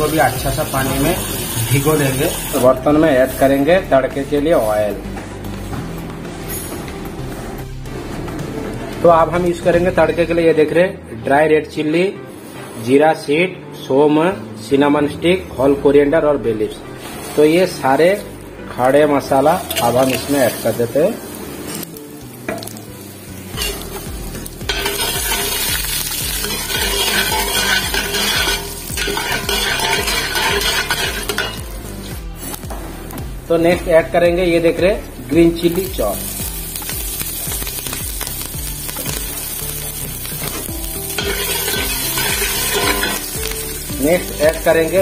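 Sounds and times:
spices sizzling in hot oil: 0:00.0 - 0:04.8, 0:17.0 - 0:33.7, 0:34.6 - 0:45.0
metal spoon stirring pot: 0:23.6 - 0:24.0, 0:24.6 - 0:31.7, 0:40.4 - 0:43.5.

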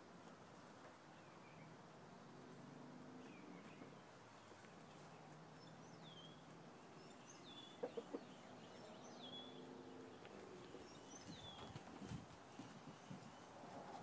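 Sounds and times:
chickens clucking: 0:07.7 - 0:08.7.

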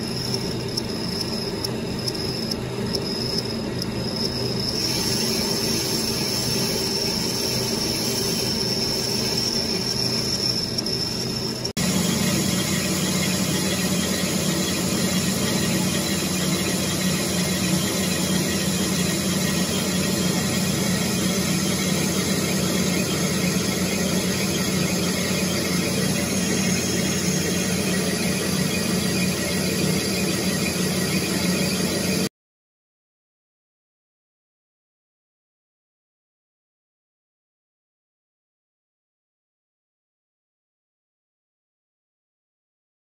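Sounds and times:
high-pitched cutting squeal: 0:00.0 - 0:32.3
lathe running: 0:00.0 - 0:32.3.

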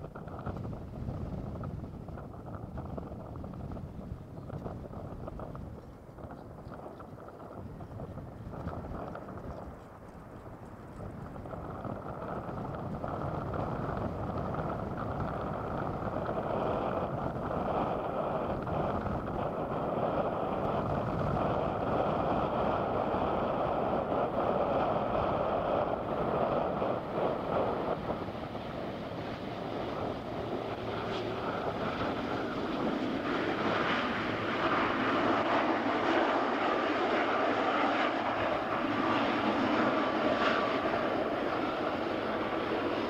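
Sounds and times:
faint engine whine: 0:00.0 - 0:43.0
jet engines rumbling: 0:00.0 - 0:43.0.

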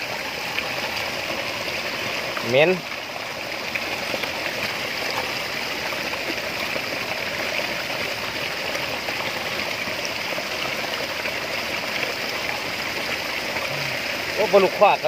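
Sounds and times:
flowing water rushing: 0:00.0 - 0:15.0.

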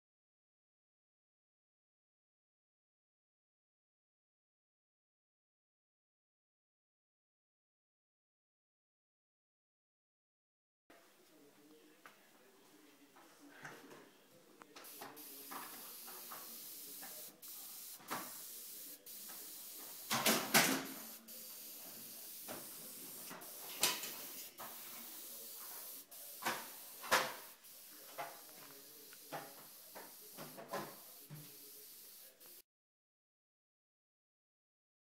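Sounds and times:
airbrush hissing: 0:14.8 - 0:32.6.

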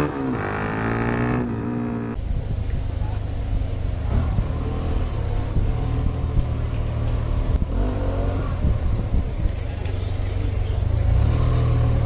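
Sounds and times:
traffic noise: 0:00.0 - 0:12.0.

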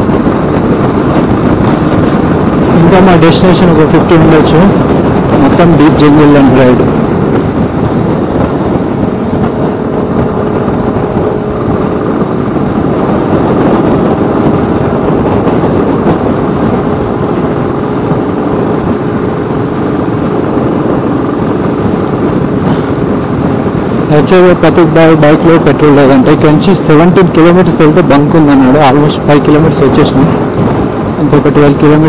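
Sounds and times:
motorcycle engine running: 0:00.0 - 0:24.2
wind rushing: 0:00.0 - 0:32.0.

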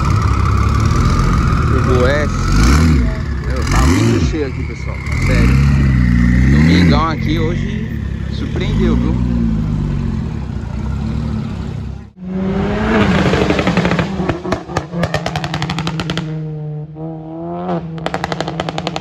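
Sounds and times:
car accelerating hard: 0:00.0 - 0:19.0
car engine running low: 0:00.0 - 0:19.0
exhaust pops and crackles: 0:13.3 - 0:16.4, 0:18.0 - 0:19.0.

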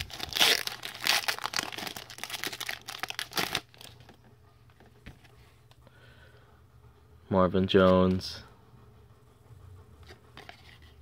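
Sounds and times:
foil wrapper crinkling and tearing: 0:00.0 - 0:04.2.

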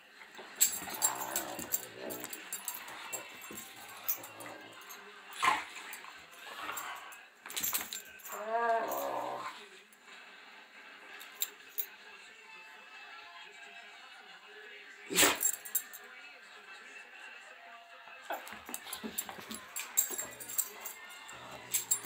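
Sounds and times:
dogs play growling: 0:00.6 - 0:07.2, 0:08.2 - 0:09.6
drawn-out pitched growl: 0:00.8 - 0:03.2, 0:08.3 - 0:09.7.

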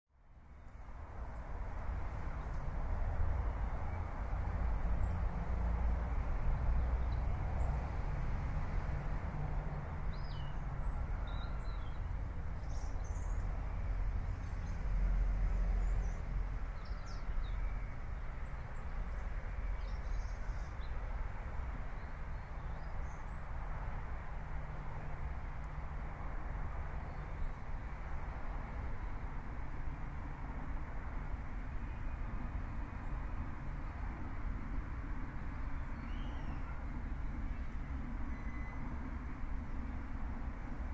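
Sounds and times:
faint bird chirps: 0:36.0 - 0:36.8, 0:38.3 - 0:38.9.

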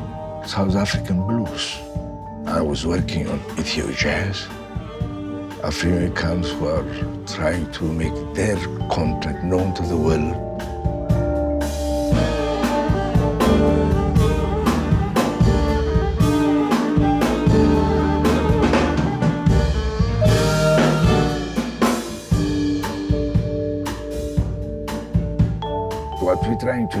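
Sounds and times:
jazz band playing: 0:00.0 - 0:27.0
drum kit groove: 0:02.9 - 0:27.0
held saxophone notes: 0:12.1 - 0:24.0.

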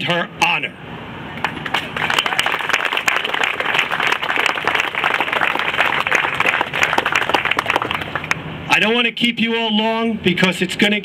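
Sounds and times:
crowd applauding: 0:01.4 - 0:08.4.

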